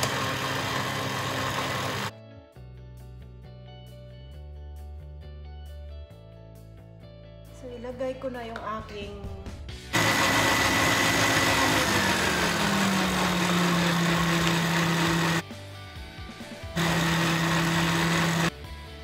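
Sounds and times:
stand mixer motor running: 0.0 - 2.1, 10.0 - 15.4, 16.8 - 18.5.

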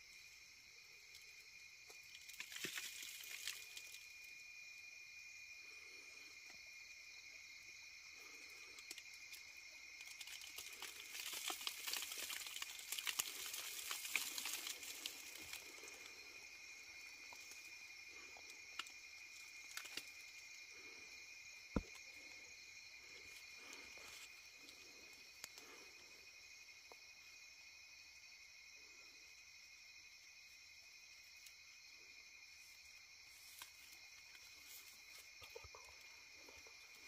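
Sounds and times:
night insects trilling: 0.0 - 37.0
dry leaves crackling and rustling: 10.2 - 15.8.

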